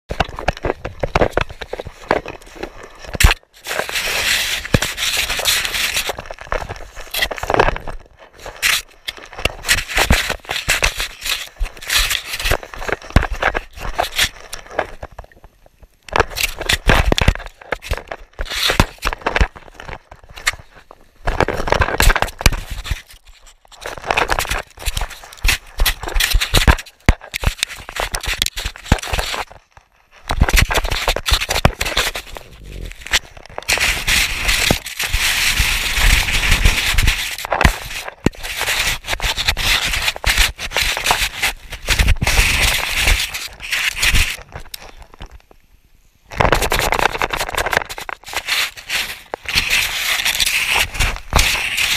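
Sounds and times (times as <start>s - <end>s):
snow scraping against camera housing: 0.2s - 15.0s, 30.3s - 45.0s, 46.5s - 51.9s.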